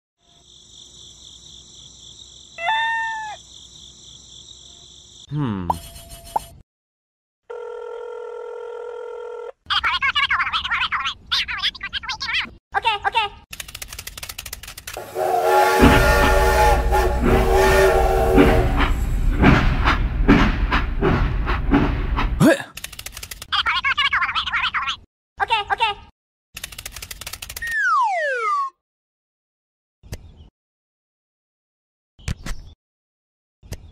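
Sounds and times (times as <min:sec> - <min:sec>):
crickets chirping: 0:00.2 - 0:06.0
toy train whistle toots: 0:15.0 - 0:18.9.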